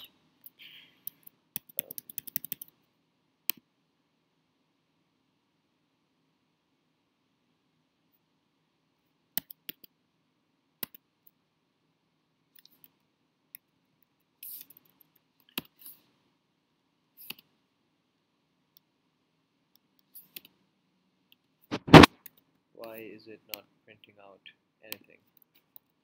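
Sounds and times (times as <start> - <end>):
keyboard keystrokes and clicks: 0.0 - 2.8, 9.4 - 9.9
brief scrape: 21.7 - 22.1.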